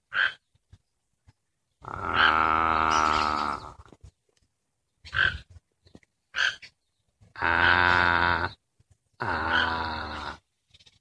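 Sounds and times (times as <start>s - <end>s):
heron calling: 0.0s - 0.5s, 5.0s - 5.5s, 6.3s - 6.8s.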